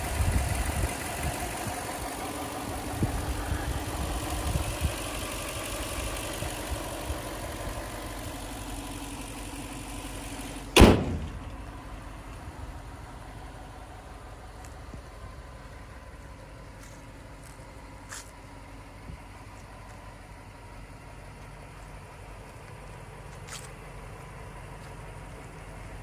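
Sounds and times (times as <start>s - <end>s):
car engine idling: 0.0s - 26.0s
car hood slamming shut: 10.8s - 11.4s.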